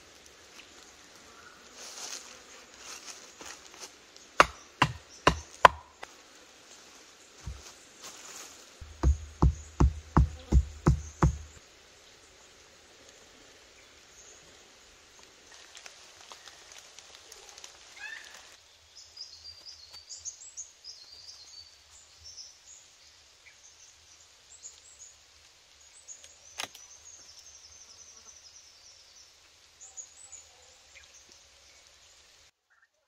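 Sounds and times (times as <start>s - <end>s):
birds chirping: 4.2s - 6.1s, 8.8s - 11.6s
sharp knock: 8.8s - 11.6s.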